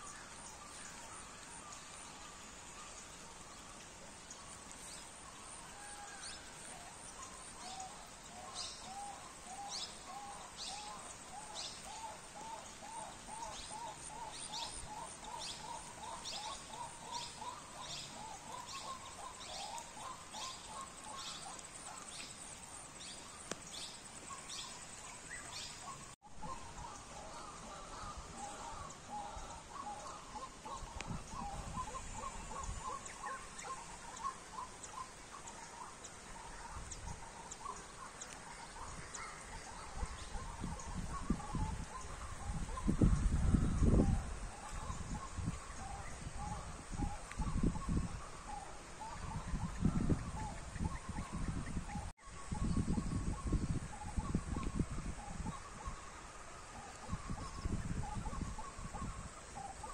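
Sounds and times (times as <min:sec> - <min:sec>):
steady rain on water: 0:00.3 - 0:26.2.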